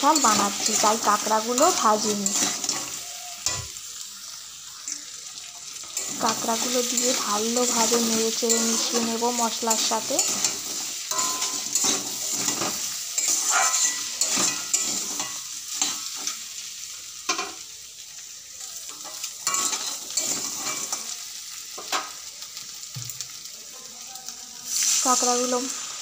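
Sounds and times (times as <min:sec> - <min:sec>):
spatula scraping metal pan: 0:00.0 - 0:03.7, 0:05.8 - 0:16.4
food sizzling in oil: 0:00.0 - 0:26.0.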